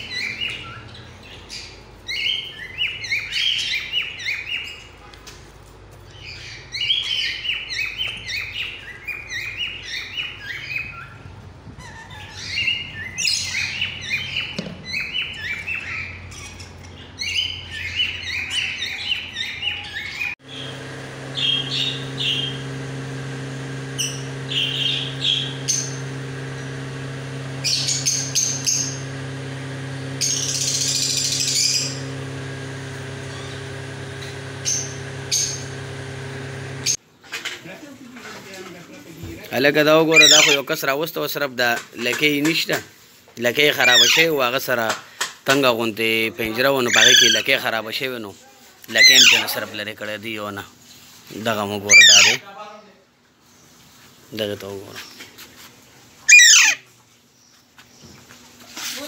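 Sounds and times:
parrots chirping and chattering: 0.0s - 5.4s, 6.0s - 20.7s, 24.0s - 26.4s, 40.0s - 40.8s, 43.7s - 44.4s, 46.6s - 47.6s, 48.9s - 49.6s, 51.8s - 52.5s, 56.2s - 56.9s
mechanical hum: 0.0s - 37.3s
harsh bird screech: 40.1s - 40.7s, 43.8s - 44.4s, 46.8s - 47.6s, 51.9s - 52.4s, 56.3s - 56.8s
sharp bird calls: 40.1s - 40.8s, 43.8s - 44.4s, 46.8s - 47.6s, 51.8s - 52.5s, 56.3s - 56.9s.

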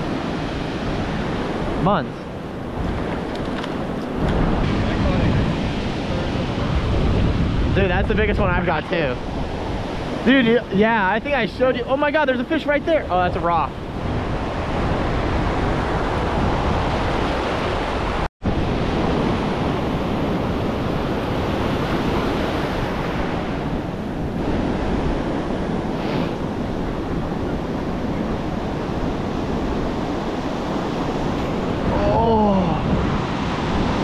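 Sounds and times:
surf washing over sand: 0.0s - 34.0s
wind buffeting microphone: 0.0s - 34.0s.

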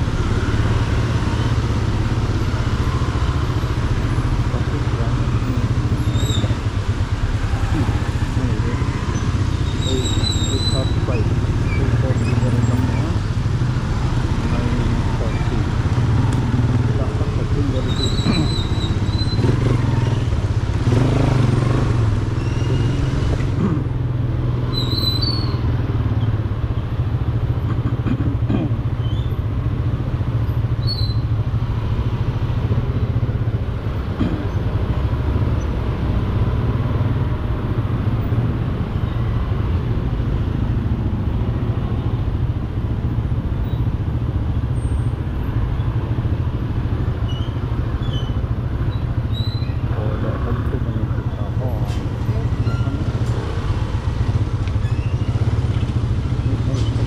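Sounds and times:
motorcycle engine running: 0.0s - 24.6s, 39.8s - 57.0s
scooter and car engines: 0.0s - 57.0s
high squeaks: 17.8s - 20.3s, 51.3s - 53.8s, 54.7s - 57.0s.

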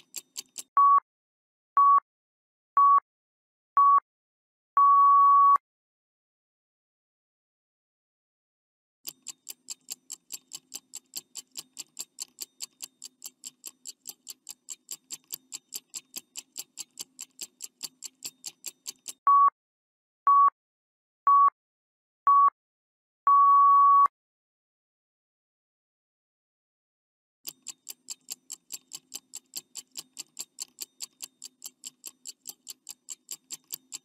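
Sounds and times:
clock ticking: 0.0s - 0.8s, 9.1s - 19.2s, 27.5s - 34.0s
short beeps: 0.8s - 1.0s, 4.8s - 5.6s, 19.3s - 19.6s, 20.3s - 20.6s, 21.3s - 21.6s, 22.3s - 22.6s, 23.3s - 24.1s
long final beep: 4.8s - 5.6s, 23.3s - 24.1s.

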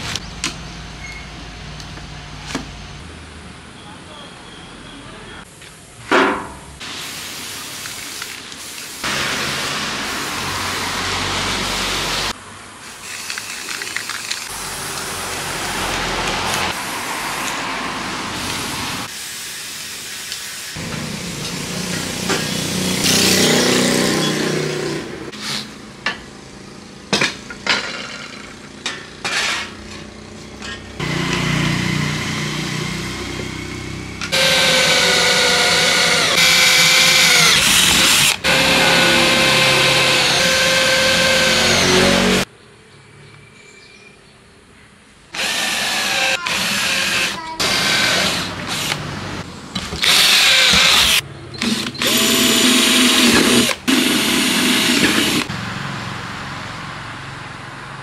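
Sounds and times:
power drill boring into metal: 34.3s - 42.4s, 45.4s - 49.0s, 50.0s - 55.5s.

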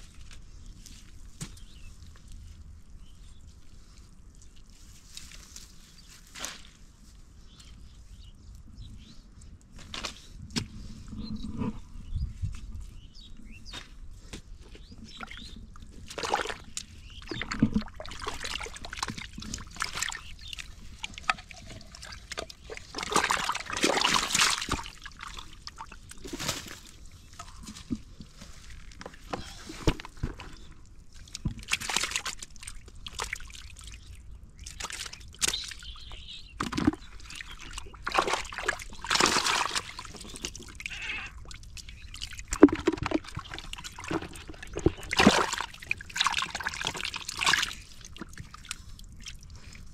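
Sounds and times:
hands splashing in muddy water: 15.1s - 35.8s, 36.6s - 49.9s.

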